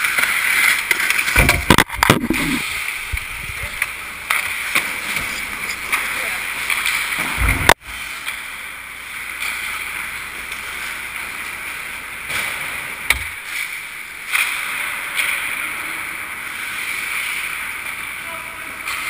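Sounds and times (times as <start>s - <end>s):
hiss of skating: 14.3s - 19.0s.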